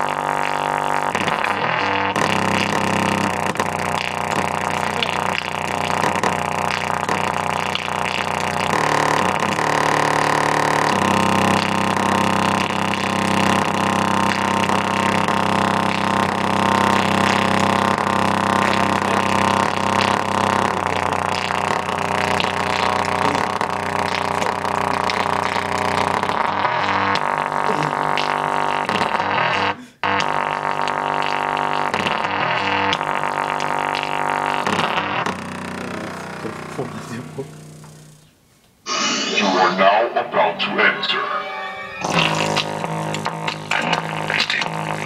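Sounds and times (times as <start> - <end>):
bass-heavy music through speaker: 0.0 - 13.1, 39.3 - 45.0.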